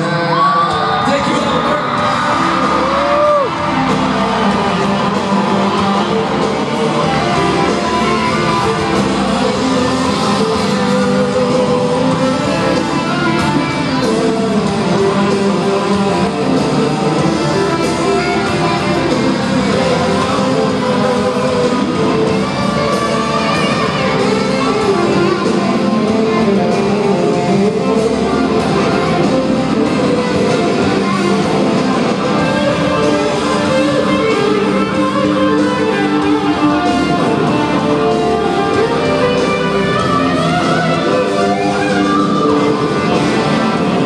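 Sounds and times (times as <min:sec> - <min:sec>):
live country band with guitars: 0:00.0 - 0:44.0.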